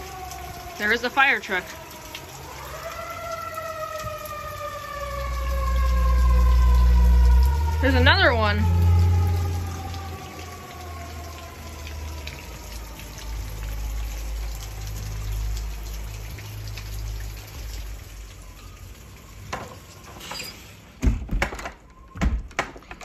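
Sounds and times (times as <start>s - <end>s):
fire truck siren: 0.0s - 21.0s, 21.8s - 22.3s
rain hissing: 0.0s - 21.0s
low engine rumble: 5.2s - 12.2s.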